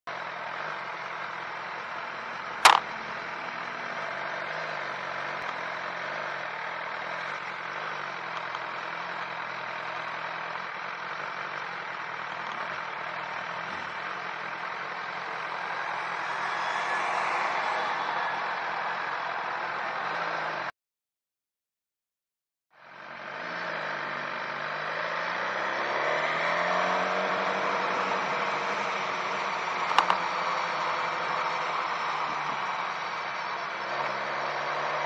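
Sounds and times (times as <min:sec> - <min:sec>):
sharp click: 0:02.6 - 0:02.8.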